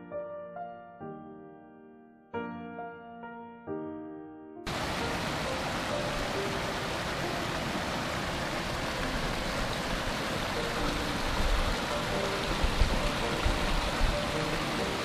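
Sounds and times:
stream rushing over rocks: 0:04.7 - 0:15.0.

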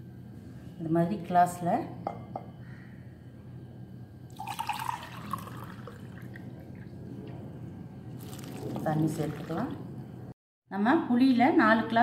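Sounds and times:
water pouring into bowl: 0:04.3 - 0:07.0, 0:08.1 - 0:09.8.

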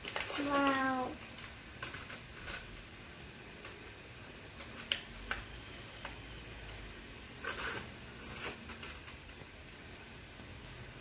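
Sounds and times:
plastic packaging crinkling: 0:00.0 - 0:02.9, 0:07.4 - 0:09.4.

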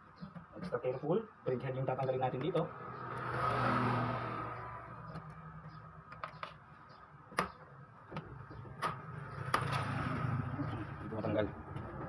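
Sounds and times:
vehicle passing by: 0:02.6 - 0:05.8, 0:09.1 - 0:12.0.

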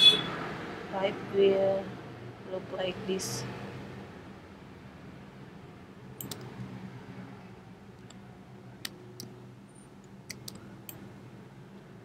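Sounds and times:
computer mouse clicks: 0:06.2 - 0:06.5, 0:10.0 - 0:11.0.

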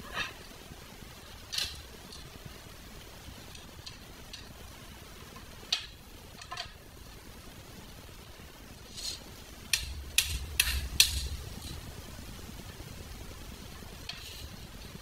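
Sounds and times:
low rumble: 0:09.4 - 0:15.0.

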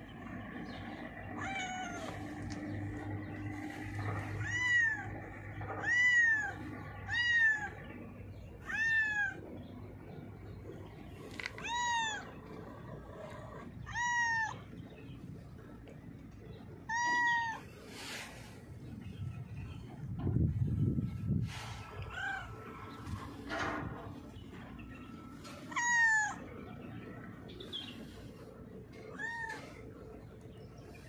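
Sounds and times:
cat meowing: 0:01.4 - 0:02.2, 0:04.2 - 0:07.8, 0:08.6 - 0:09.4, 0:11.6 - 0:12.4, 0:13.8 - 0:14.7, 0:16.9 - 0:17.7, 0:25.7 - 0:26.5, 0:29.1 - 0:29.8.

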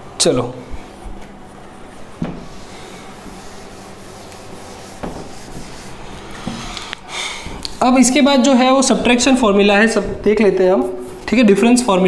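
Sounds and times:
whiteboard duster rubbing: 0:02.3 - 0:07.0.

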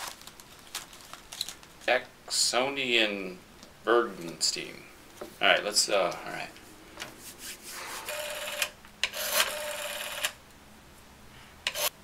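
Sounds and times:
rotary telephone dial whirring: 0:08.1 - 0:10.4.

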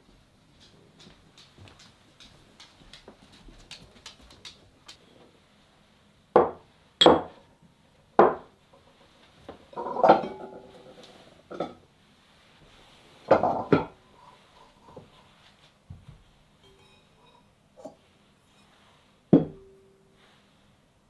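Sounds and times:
dishes and utensils knocking: 0:06.4 - 0:07.4, 0:09.7 - 0:10.6, 0:16.6 - 0:17.5
metal pan ringing: 0:16.6 - 0:17.4.

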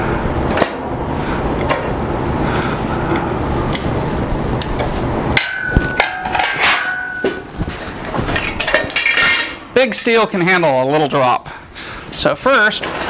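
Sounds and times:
steady noise: 0:00.0 - 0:10.8
steel frame clanging: 0:05.4 - 0:10.2.

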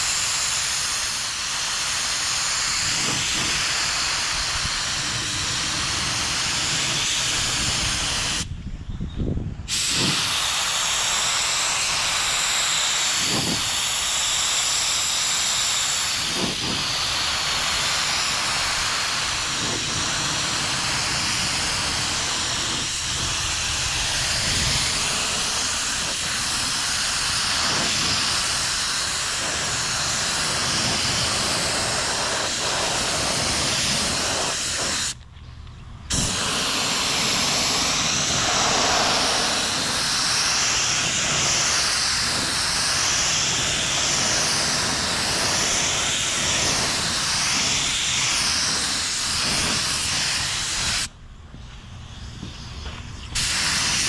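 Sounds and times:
spray gun hissing: 0:00.0 - 0:08.5, 0:09.7 - 0:35.2, 0:36.1 - 0:51.1, 0:52.1 - 0:54.0.

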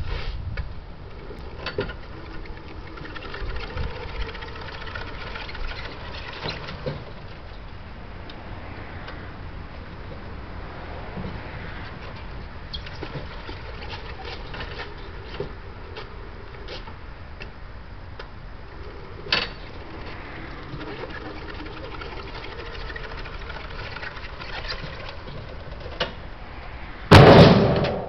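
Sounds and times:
loud metallic bang: 0:27.1 - 0:28.0.

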